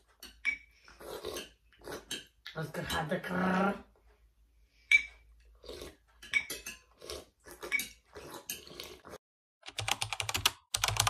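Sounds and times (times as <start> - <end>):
spoons clinking on ceramic bowls: 0.0 - 0.7, 4.9 - 5.2, 6.2 - 6.9.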